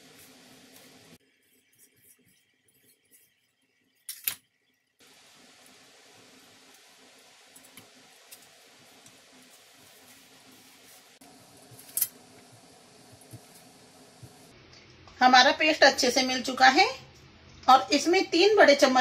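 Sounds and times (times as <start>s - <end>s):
handling flour mixture: 5.1s - 14.5s.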